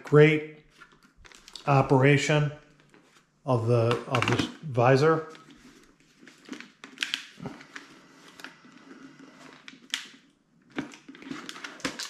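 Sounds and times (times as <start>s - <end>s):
plastic helmet clicks and rustling: 0.7s - 1.7s, 5.3s - 12.0s.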